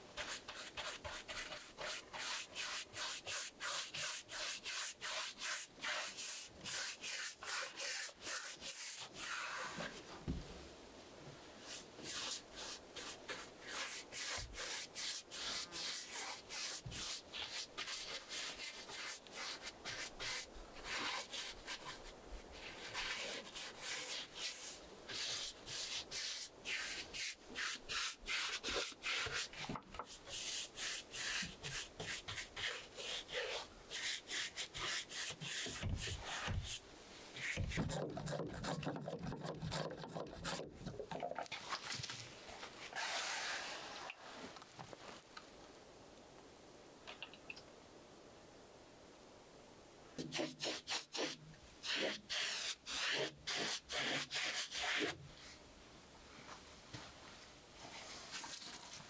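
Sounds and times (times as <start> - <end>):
paintbrush scrubbing wood: 0.2 - 10.0, 11.6 - 36.8, 37.4 - 40.8, 50.2 - 55.2.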